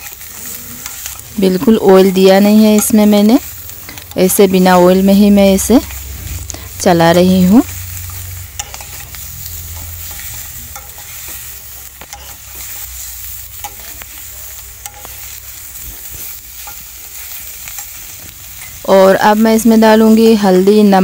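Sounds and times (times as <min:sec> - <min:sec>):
metal spoon scraping a pan: 0:00.0 - 0:18.9
food sizzling in a pan: 0:00.0 - 0:21.0.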